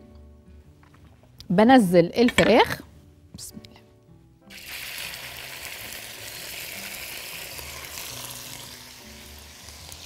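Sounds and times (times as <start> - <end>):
chicken sizzling in oil: 4.5 - 10.0.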